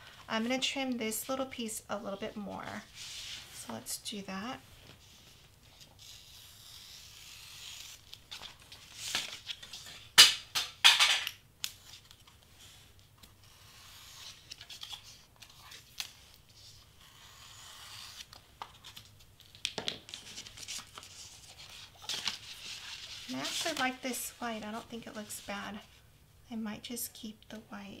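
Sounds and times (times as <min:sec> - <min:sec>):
craft knife scratching cardstock: 0:13.4 - 0:15.2, 0:17.0 - 0:18.3
paper rustling: 0:18.0 - 0:25.5.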